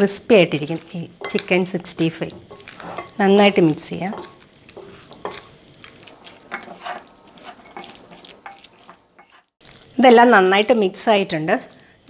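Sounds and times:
metal spoon scraping glass bowl: 2.5s - 3.2s, 6.2s - 9.5s.

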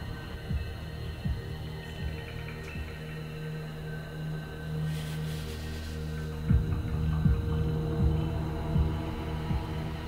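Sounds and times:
music with thudding beat: 0.0s - 3.2s, 6.4s - 10.0s.

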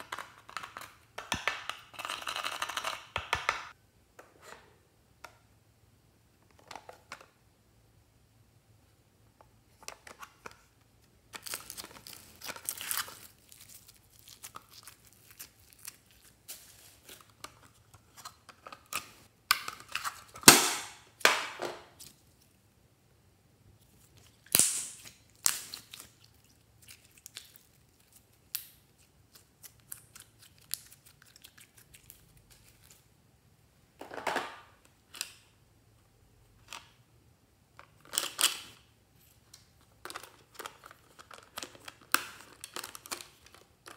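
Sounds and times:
plastic packaging rustling: 11.3s - 19.2s.

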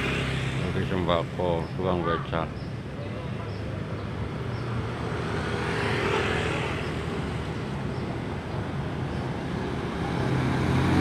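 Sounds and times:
vehicle passing by: 0.0s - 1.3s, 4.4s - 11.0s
motorcycle engines passing: 0.0s - 11.0s
road noise hum: 0.0s - 11.0s.

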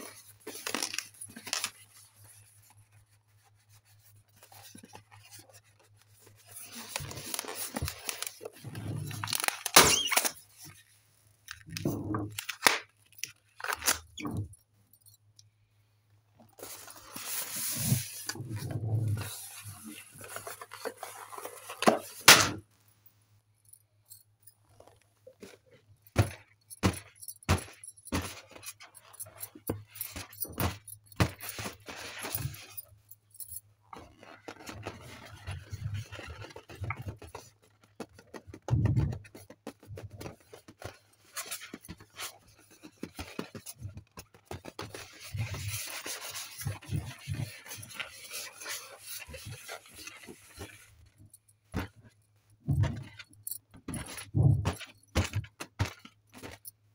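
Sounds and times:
rustling of deflated balloons: 0.0s - 14.6s, 16.3s - 22.8s, 24.6s - 33.1s, 33.8s - 56.9s
tapping and rubbing on balloon: 34.1s - 56.6s.

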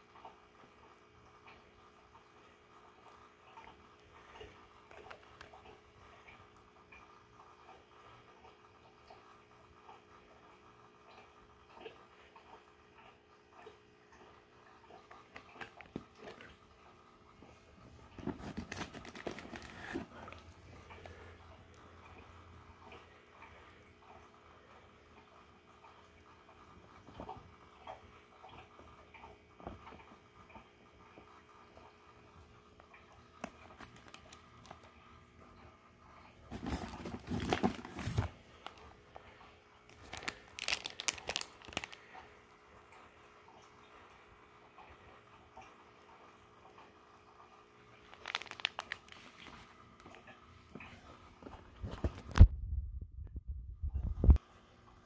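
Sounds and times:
clicks of handled box: 18.2s - 20.1s
plastic bags crinkling: 18.2s - 20.4s, 33.7s - 34.9s, 36.5s - 38.9s, 39.9s - 42.0s, 48.1s - 49.7s.

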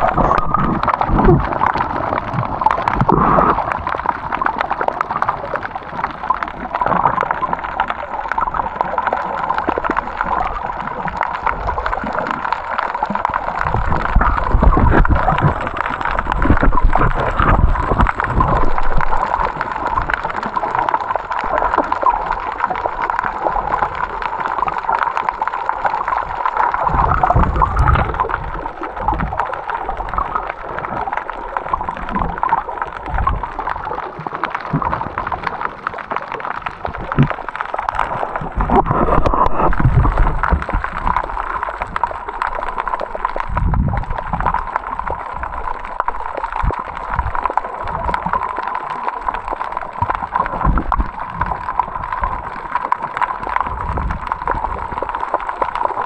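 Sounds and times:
water sloshing and gurgling: 0.0s - 56.0s.

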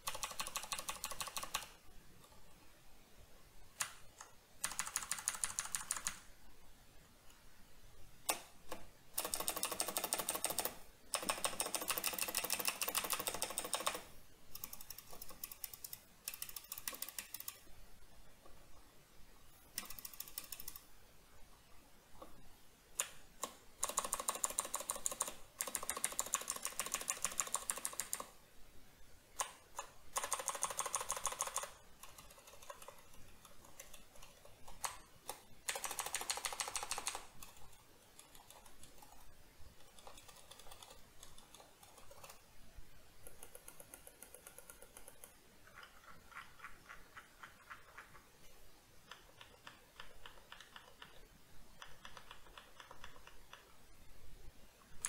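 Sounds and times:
mechanical keyboard clicking: 0.0s - 1.7s, 3.8s - 6.2s, 8.2s - 17.6s, 19.8s - 20.8s, 23.0s - 28.3s, 29.4s - 39.2s, 39.8s - 42.4s, 43.2s - 48.2s, 49.1s - 51.2s, 51.8s - 53.7s.

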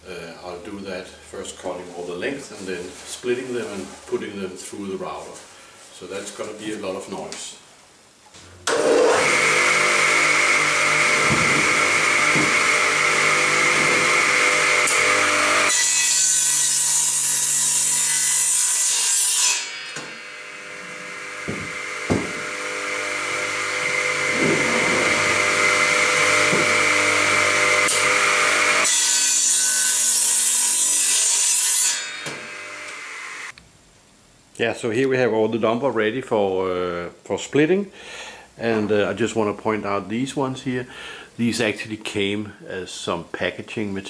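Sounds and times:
radial arm saw cutting wood: 8.6s - 33.5s.

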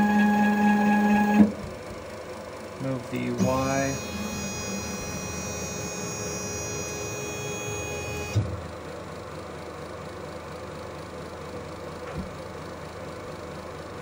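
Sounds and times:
stepper motors whining: 0.0s - 1.6s, 2.8s - 8.6s
spindle humming: 3.1s - 8.5s.

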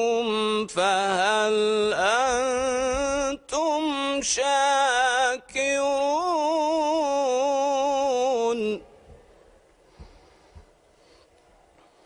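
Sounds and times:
man reciting melodically: 0.0s - 9.0s.

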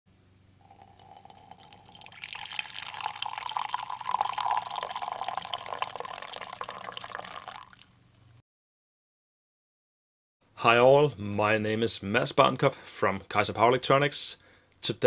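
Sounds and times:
coffee pouring into a mug: 0.6s - 8.1s.

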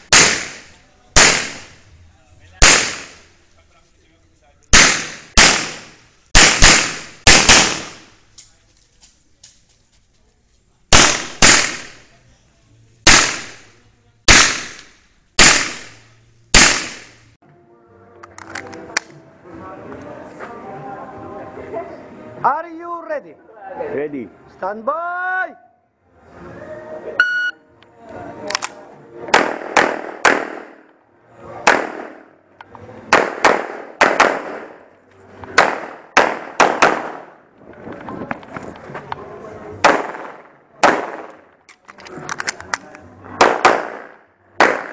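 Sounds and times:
handgun shots: 0.0s - 1.7s, 2.6s - 3.3s, 4.7s - 8.1s, 10.9s - 12.0s, 13.1s - 13.7s, 14.3s - 16.0s, 16.6s - 17.2s, 28.5s - 30.8s, 33.1s - 34.8s, 35.6s - 37.3s, 39.8s - 41.4s, 43.4s - 44.9s.

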